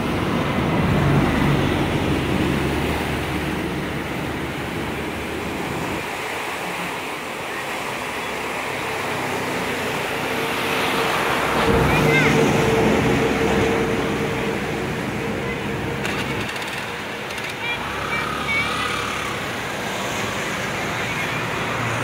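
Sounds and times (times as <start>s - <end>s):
floodwater rushing: 0.0s - 22.0s.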